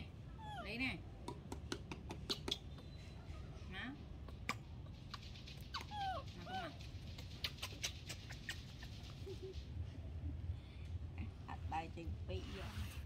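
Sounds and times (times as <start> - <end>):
baby monkey squealing: 4.3 - 6.8.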